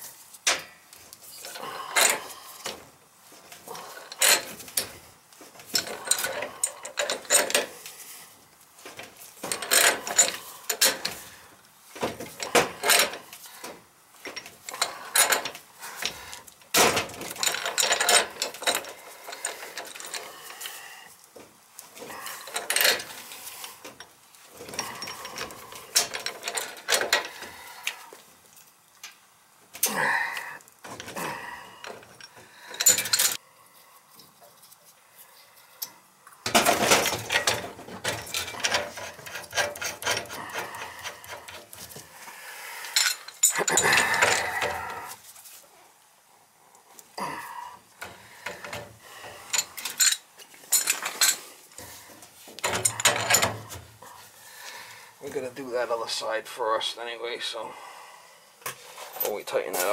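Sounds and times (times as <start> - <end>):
wrench clanking and scraping on metal: 0.4 - 2.8, 3.7 - 5.0, 5.6 - 8.0, 8.9 - 11.4, 12.0 - 20.7, 22.1 - 27.6, 31.8 - 33.4, 36.5 - 42.0, 42.9 - 45.2, 48.0 - 54.0, 58.7 - 59.9.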